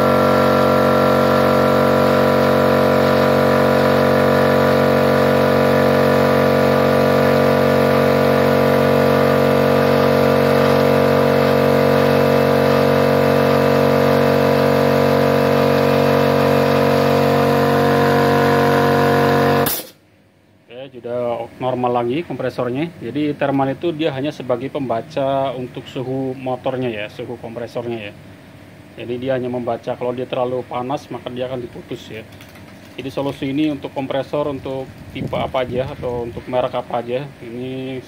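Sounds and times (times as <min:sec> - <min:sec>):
air compressor running: 0:00.0 - 0:20.1.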